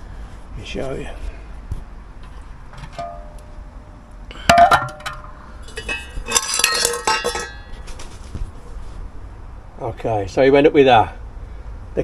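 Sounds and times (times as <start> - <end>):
metal box clanking on concrete: 2.8 - 3.4, 4.4 - 8.2.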